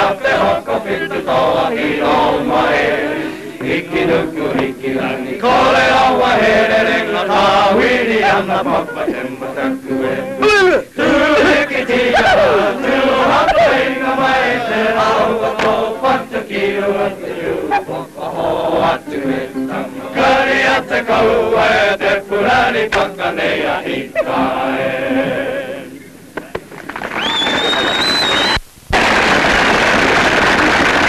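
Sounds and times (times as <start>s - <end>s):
group chanting and singing: 0.0s - 26.2s.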